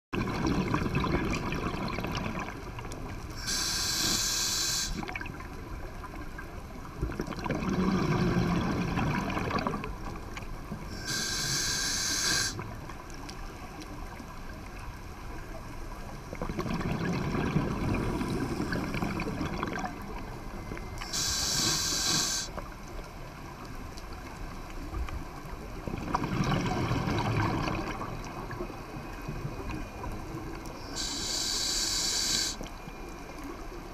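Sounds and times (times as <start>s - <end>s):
exhaled air bubbling underwater: 0.2s - 13.2s, 15.6s - 33.9s
regulator inhale hiss: 3.4s - 5.0s, 10.9s - 12.6s, 21.0s - 22.6s, 30.8s - 32.7s.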